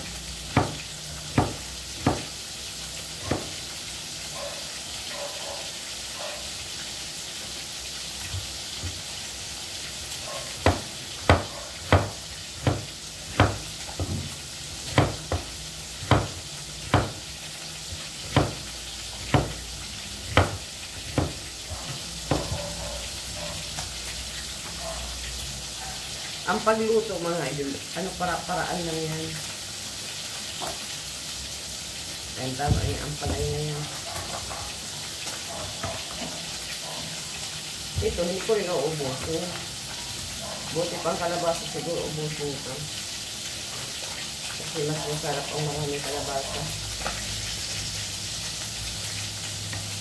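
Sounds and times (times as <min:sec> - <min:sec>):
oil sizzling in wok: 0:00.0 - 0:50.0
knife chopping on wooden board: 0:00.5 - 0:02.3, 0:03.2 - 0:03.5, 0:10.6 - 0:17.2, 0:17.9 - 0:19.6, 0:20.2 - 0:22.7.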